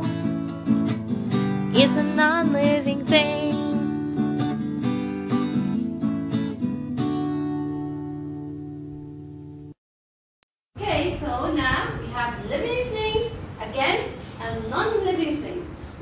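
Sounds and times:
strummed acoustic guitar: 0.0s - 9.7s
person singing: 1.8s - 3.8s.

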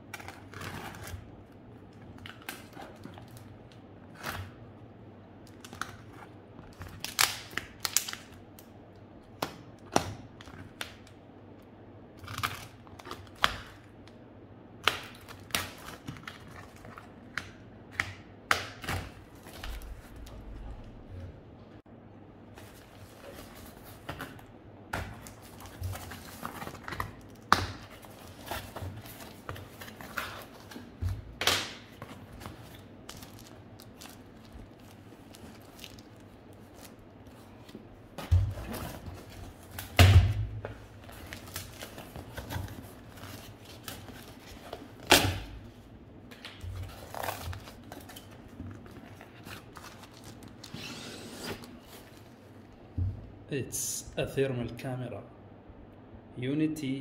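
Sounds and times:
tape and cardboard tearing: 49.6s - 52.1s.

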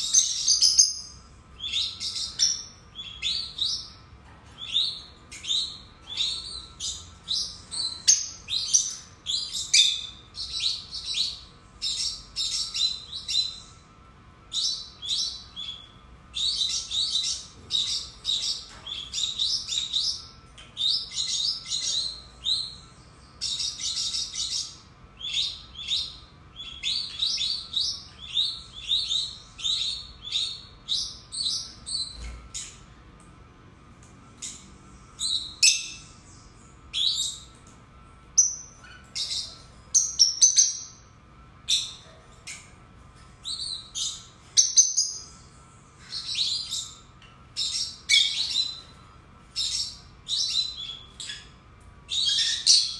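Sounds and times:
lovebirds chattering: 0.0s - 13.8s, 14.5s - 32.9s, 38.4s - 41.1s, 43.4s - 52.9s.

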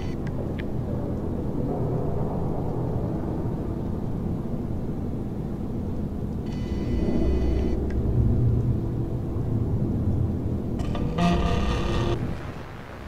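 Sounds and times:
low rumbling drone: 0.0s - 13.0s
high electronic whine: 6.4s - 8.8s, 10.6s - 13.0s.

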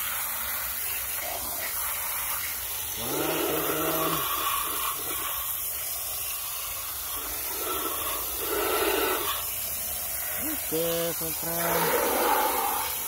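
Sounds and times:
hose water jet hissing: 0.0s - 13.0s.

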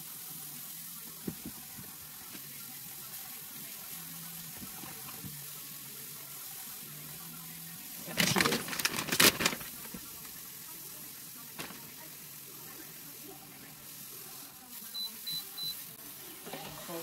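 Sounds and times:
rustling food handling: 8.0s - 10.4s.

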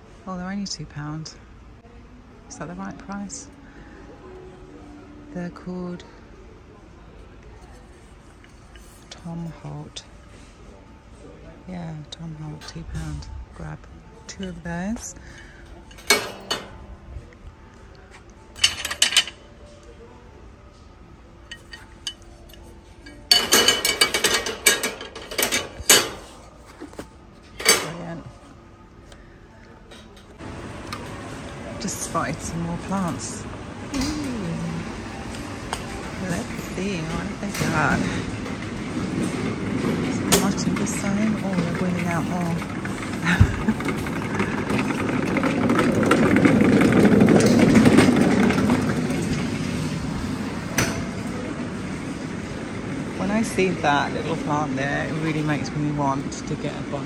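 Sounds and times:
wire shopping trolley rattling: 14.3s - 17.0s, 18.5s - 19.5s, 21.4s - 28.4s, 30.4s - 57.0s.

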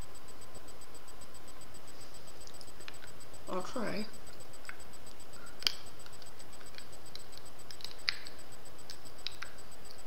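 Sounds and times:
steady hiss: 0.0s - 10.0s
teeth cracking hard candy: 4.6s - 10.0s.

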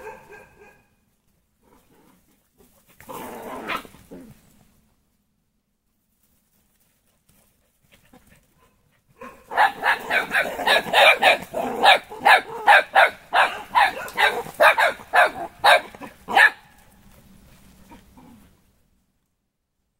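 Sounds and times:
puppies yapping and barking: 9.5s - 16.6s.

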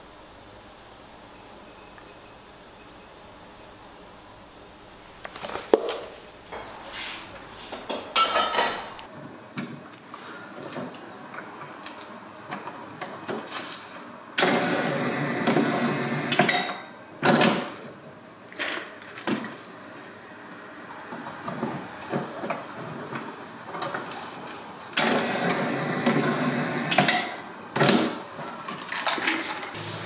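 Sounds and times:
can-seaming machine running: 14.4s - 16.9s, 24.9s - 28.0s, 29.6s - 30.0s.

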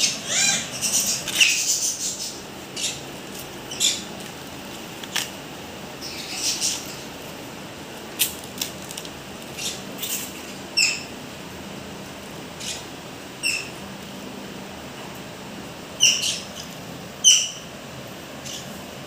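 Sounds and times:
parrots squeaking: 0.0s - 4.1s, 6.0s - 7.0s, 9.5s - 10.2s, 10.8s - 11.1s, 12.6s - 13.8s, 16.0s - 17.6s, 18.4s - 18.8s
corn husks tearing and rustling: 8.1s - 9.2s.

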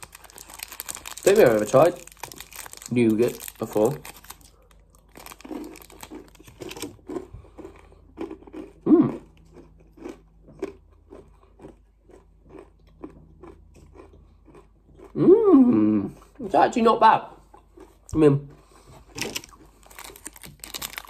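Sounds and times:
plastic wrapper crinkling: 0.0s - 7.0s, 19.1s - 21.0s
person chewing crunchy food: 0.0s - 15.4s, 17.4s - 21.0s.

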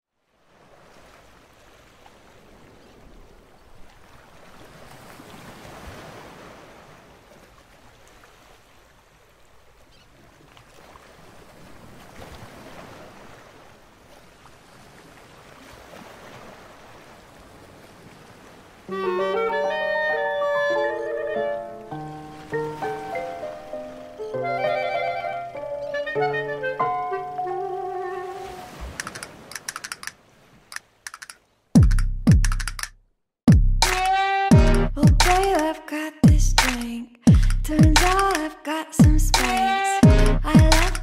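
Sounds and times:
ocean waves washing in: 0.2s - 31.6s.

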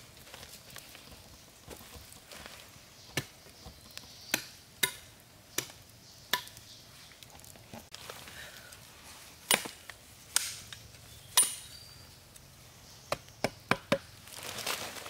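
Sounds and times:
rustle of leaves or wood: 0.0s - 4.3s, 5.8s - 13.0s, 14.1s - 15.0s
machete chopping wood: 4.3s - 6.6s, 9.5s - 10.7s, 11.4s - 11.7s, 13.1s - 14.1s.

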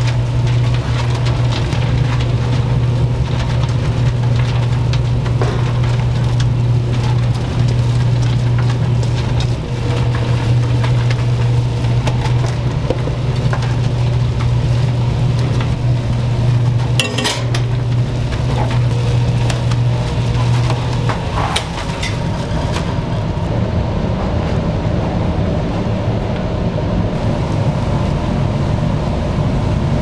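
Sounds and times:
loud steady low hum: 0.0s - 30.0s
dishes and utensils clinking: 17.0s - 17.8s.

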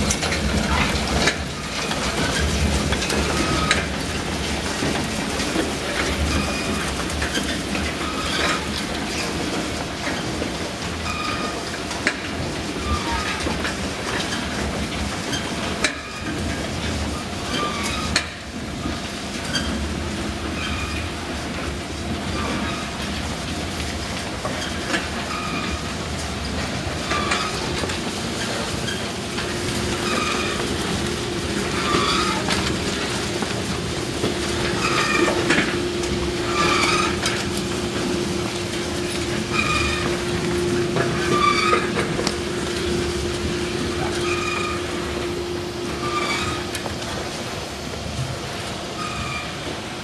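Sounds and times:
chain mechanism squeak: 11.0s - 11.6s, 24.6s - 25.8s, 31.7s - 32.6s, 36.5s - 37.3s, 41.2s - 42.0s.

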